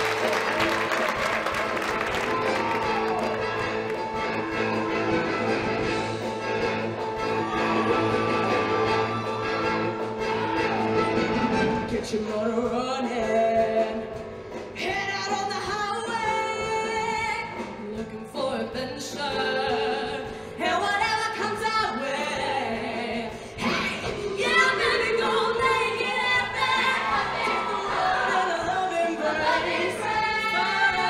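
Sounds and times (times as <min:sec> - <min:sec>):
choir singing: 0:24.4 - 0:31.0.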